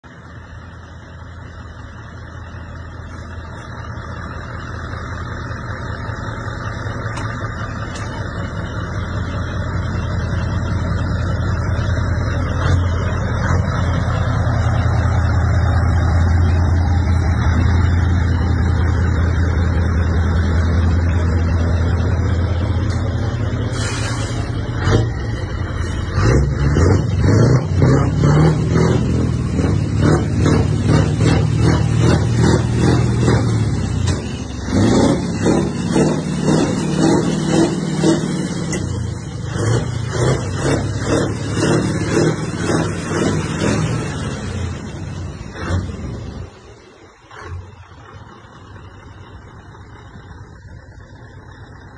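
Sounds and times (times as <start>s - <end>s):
diesel truck engine running: 0.0s - 51.9s
short air hiss: 23.7s - 24.6s.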